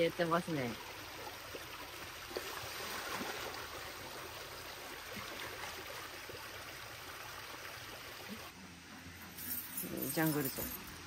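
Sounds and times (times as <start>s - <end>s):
water sloshing and trickling: 0.0s - 8.6s
small splashes: 0.6s - 8.5s.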